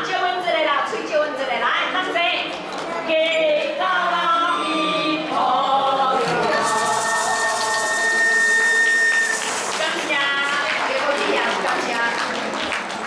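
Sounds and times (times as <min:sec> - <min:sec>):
mixed voices singing: 0:03.3 - 0:09.8
wooden fish percussion: 0:06.3 - 0:10.7
bamboo flute: 0:06.4 - 0:10.0.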